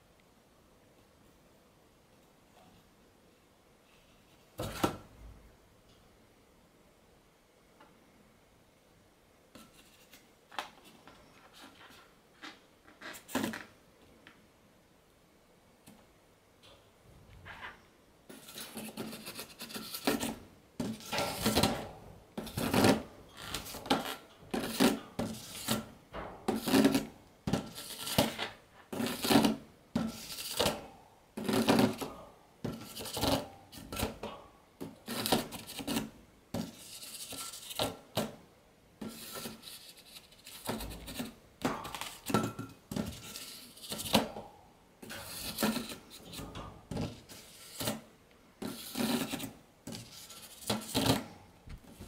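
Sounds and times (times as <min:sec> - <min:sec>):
balloon squeaking against wire bars: 0:11.8 - 0:13.5, 0:22.4 - 0:25.9.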